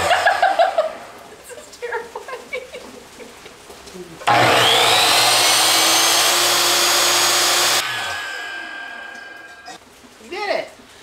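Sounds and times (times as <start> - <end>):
miter saw cutting wood: 4.2 - 9.8.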